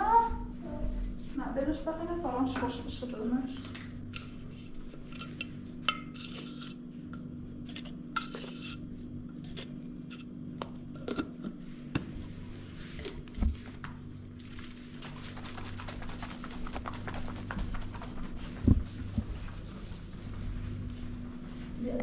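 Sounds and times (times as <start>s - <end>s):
low hum: 13.4s - 22.0s.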